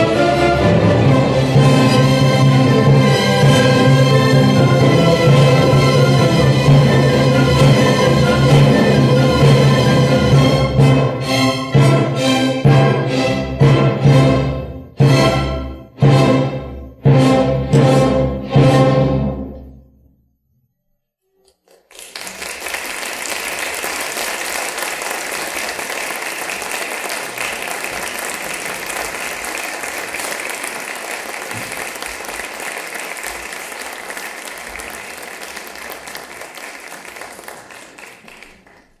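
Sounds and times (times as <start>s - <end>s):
orchestral music: 0.0s - 19.9s
audience applauding: 21.5s - 39.0s.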